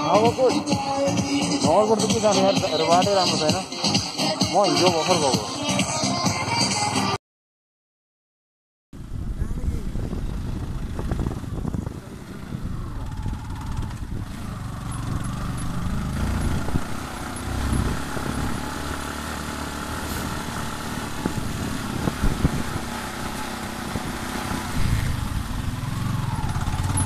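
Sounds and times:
microphone rumble: 9.0s - 14.3s
motorcycle engine running: 9.0s - 27.0s.

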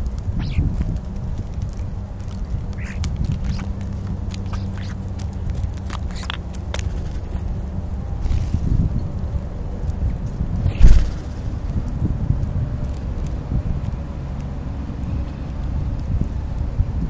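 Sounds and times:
harsh bird calls: 0.0s - 0.9s, 2.4s - 9.1s
low rumble: 0.0s - 14.2s
birds pecking clicks: 0.0s - 16.9s.

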